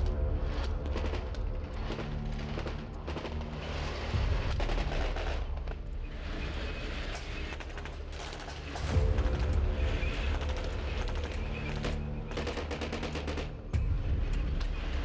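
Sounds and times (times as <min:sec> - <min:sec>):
tank engine and tracks rumbling: 0:00.0 - 0:15.0
rifle and machine-gun fire: 0:00.6 - 0:05.5, 0:10.3 - 0:13.7.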